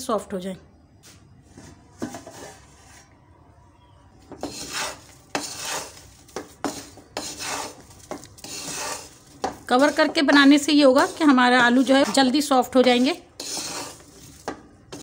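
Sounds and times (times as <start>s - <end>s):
spatula scraping salt in wok: 4.4s - 15.0s.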